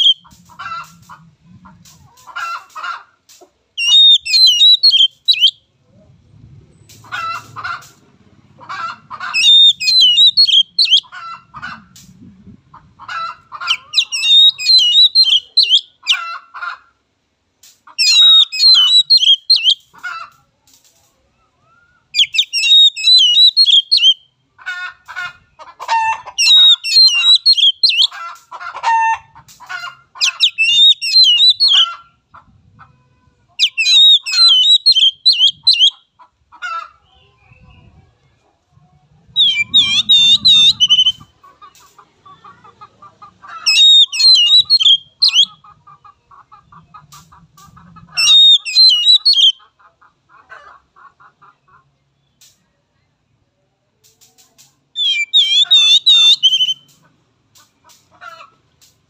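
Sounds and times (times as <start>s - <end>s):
bird warbling song: 0.0s - 0.3s, 3.8s - 5.6s, 9.2s - 11.1s, 13.6s - 16.2s, 18.0s - 19.9s, 21.9s - 24.3s, 26.4s - 28.2s, 30.2s - 31.9s, 33.6s - 36.0s, 39.3s - 41.3s, 43.6s - 45.5s, 48.2s - 49.6s, 55.0s - 56.9s
bird chattering calls: 0.0s - 1.1s, 3.8s - 5.5s, 8.7s - 11.9s, 13.2s - 16.3s, 17.9s - 20.0s, 22.2s - 24.2s, 26.3s - 28.4s, 29.6s - 31.9s, 33.6s - 36.0s, 39.4s - 42.8s, 43.5s - 45.6s, 46.7s - 49.7s, 55.0s - 57.0s.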